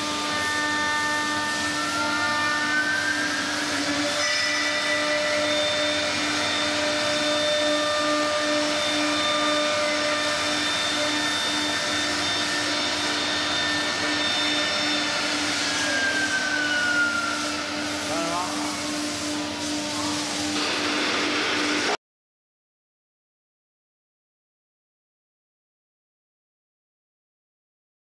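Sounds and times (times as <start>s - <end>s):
router spindles whining: 0.0s - 22.0s
steady hum: 11.0s - 22.0s.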